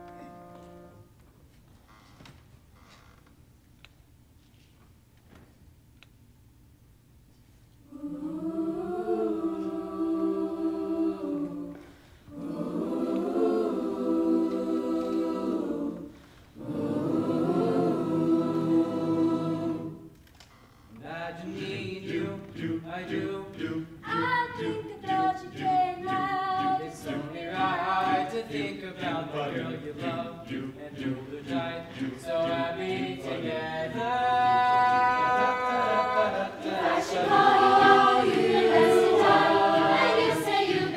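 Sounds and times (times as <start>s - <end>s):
mixed choir singing: 7.9s - 20.1s, 21.3s - 40.9s.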